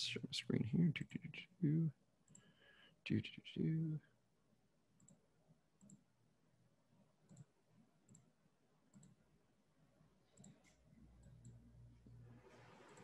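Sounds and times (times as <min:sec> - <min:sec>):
computer mouse clicks: 0:05.0 - 0:05.2, 0:05.8 - 0:06.1, 0:07.2 - 0:08.3, 0:08.9 - 0:09.2, 0:10.3 - 0:11.7, 0:12.7 - 0:13.0.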